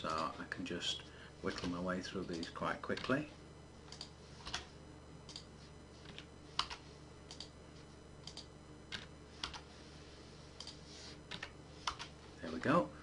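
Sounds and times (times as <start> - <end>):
keyboard and mouse clicking: 3.9 - 4.6, 6.1 - 7.5, 8.2 - 9.6.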